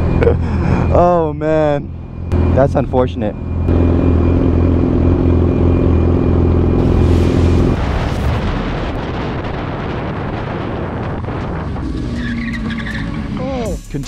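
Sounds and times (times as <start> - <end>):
wind noise on microphone: 6.8 - 12.6.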